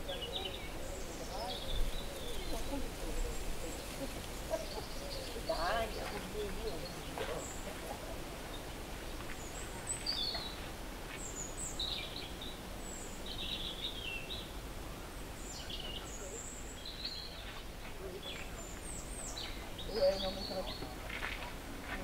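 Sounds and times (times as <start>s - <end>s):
background hiss: 0.0s - 22.0s
small birds chirping: 0.0s - 22.0s.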